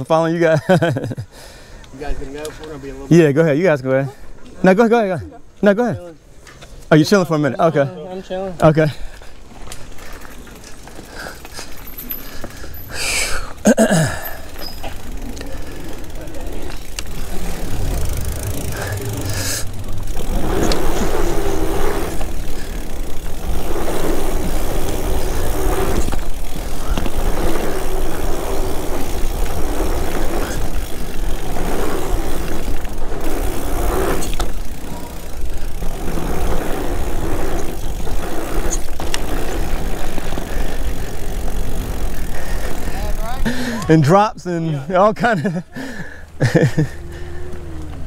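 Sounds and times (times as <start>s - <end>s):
bike rattling: 0.0s - 48.0s
tyres rumbling on trail: 0.0s - 48.0s.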